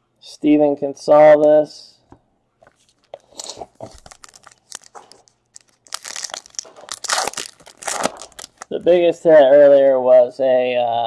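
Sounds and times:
foil wrapper tearing and crinkling: 2.8s - 8.9s.

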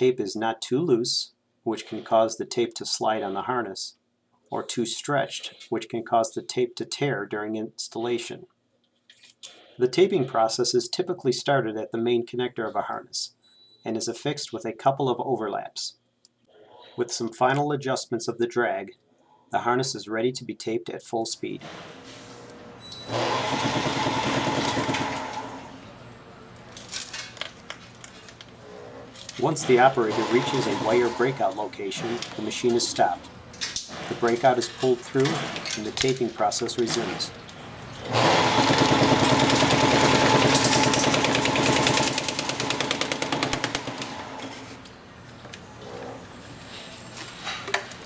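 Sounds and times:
machine mechanical rattle: 23.1s - 25.5s, 38.1s - 44.5s.

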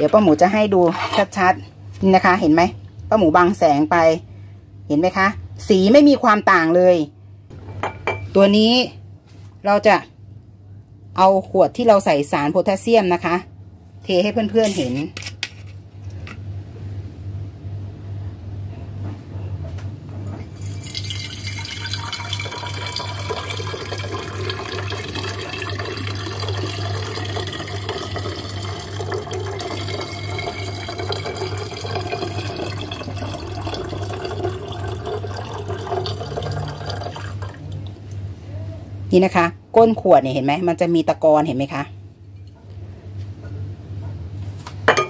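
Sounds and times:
fizzy wine pouring into bottle: 20.6s - 37.7s.

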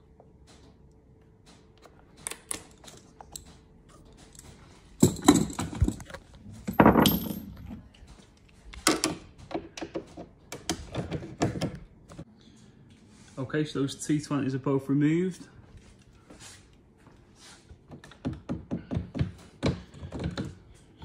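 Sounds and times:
handling bumps and scrapes: 4.3s - 8.3s.

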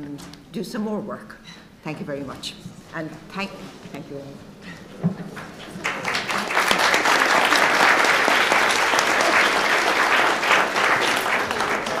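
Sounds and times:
audience applauding: 5.2s - 12.0s.

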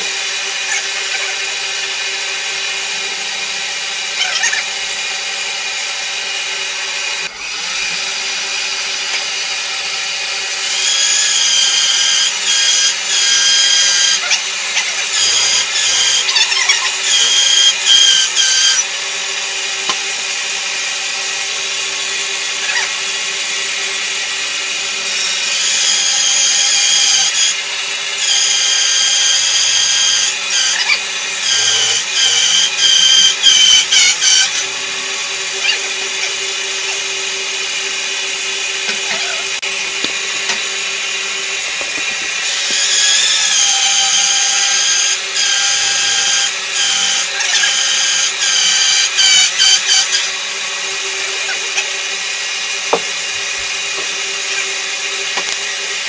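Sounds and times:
band saw running hum: 0.0s - 56.0s
saw blade whining through wood: 0.0s - 56.0s.

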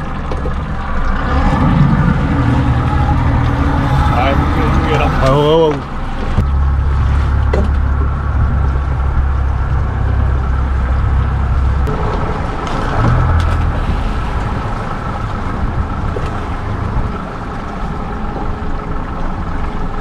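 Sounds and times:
outboard motor running: 0.0s - 20.0s.

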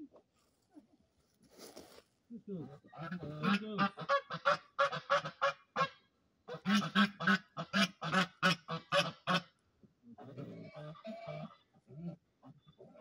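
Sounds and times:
geese honking: 2.9s - 9.5s.

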